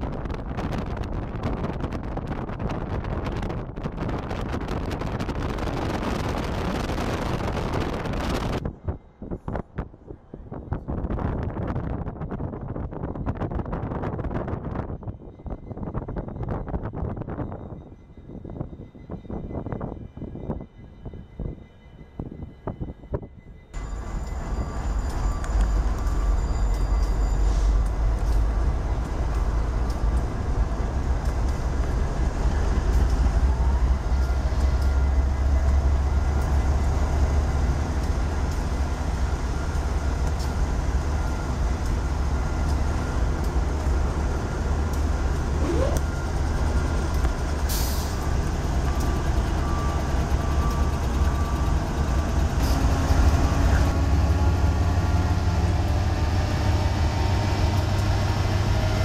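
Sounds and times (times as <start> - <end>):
short rising squeal: 23.8 - 28.5
locomotive engines idling: 23.8 - 59.0.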